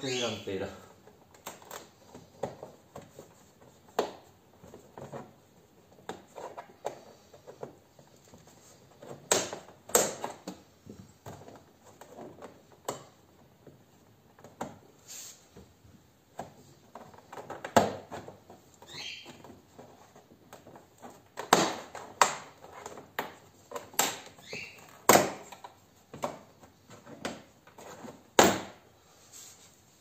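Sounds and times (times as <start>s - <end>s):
plastic squeaks: 16.9s - 25.6s.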